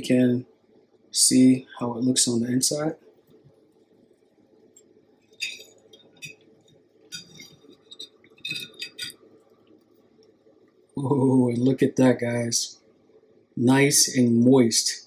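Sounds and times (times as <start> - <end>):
metal server scraping glass plate: 5.4 - 6.4, 7.1 - 9.2.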